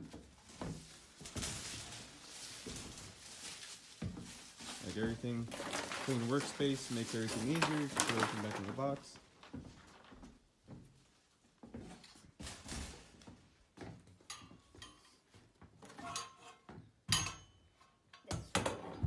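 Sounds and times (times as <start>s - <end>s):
rustles scrapes and knocks: 0.0s - 10.3s.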